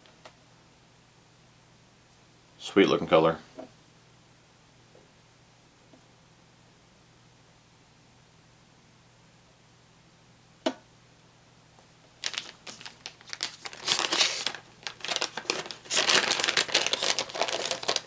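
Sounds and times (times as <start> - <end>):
plastic packet crinkling: 12.2 - 18.0.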